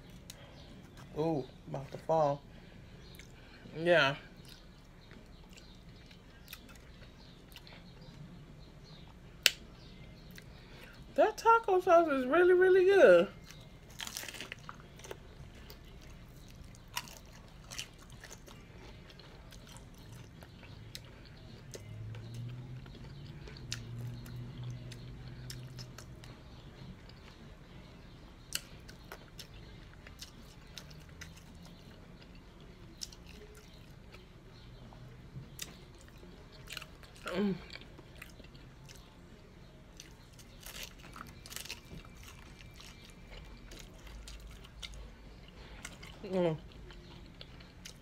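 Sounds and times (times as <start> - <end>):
person chewing crunchy taco shell: 13.4 - 27.6, 28.5 - 34.3, 35.5 - 39.2, 39.9 - 48.0.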